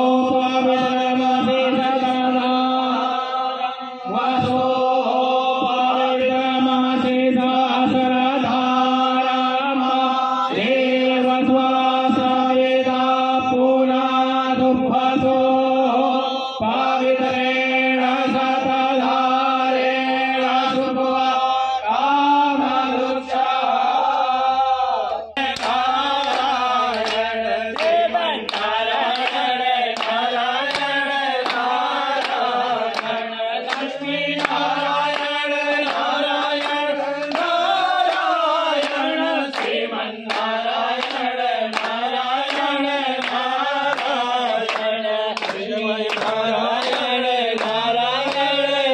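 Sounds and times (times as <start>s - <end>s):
group singing devotional song: 0.0s - 48.9s
men chanting in unison: 0.0s - 48.9s
hand claps: 25.4s - 48.9s.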